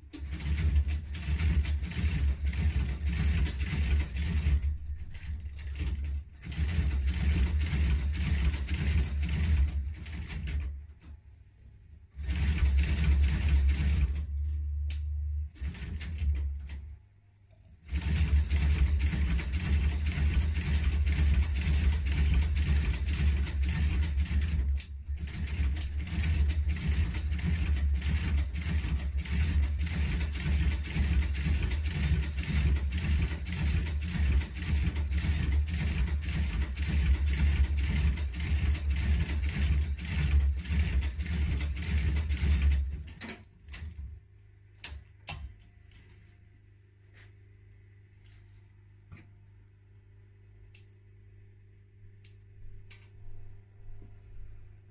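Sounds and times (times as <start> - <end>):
stitching machine motor humming: 0.1 - 10.8, 12.2 - 14.4, 17.8 - 44.0
clatter of stitches: 0.1 - 11.0, 17.9 - 43.9.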